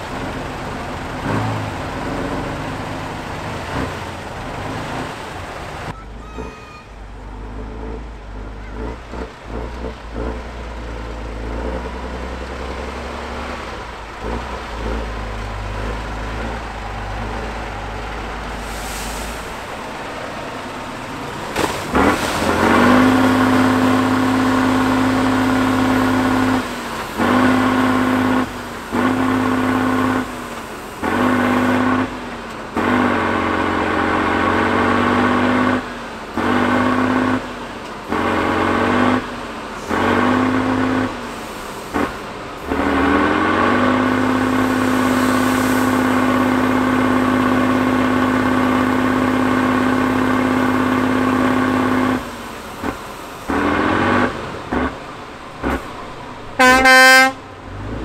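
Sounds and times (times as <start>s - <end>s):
diesel truck engine revving: 0.0s - 58.0s.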